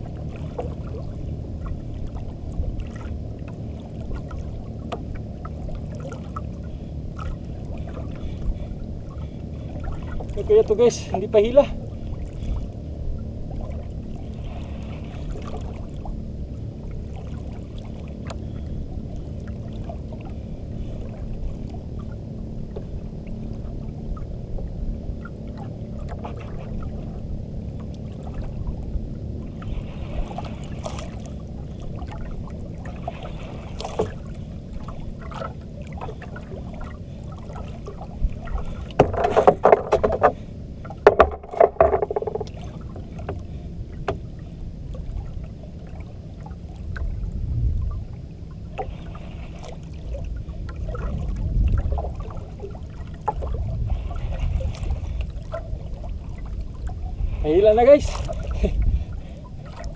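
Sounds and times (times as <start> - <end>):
sea noise: 0.0 - 59.9
wind: 0.0 - 59.9
small knocks and clicks: 39.0 - 42.6.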